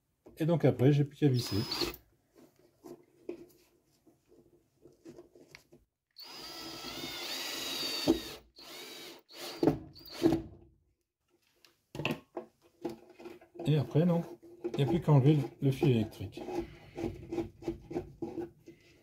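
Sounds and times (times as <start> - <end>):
cordless drill driving screw: 1.4 - 2.0, 6.2 - 10.4.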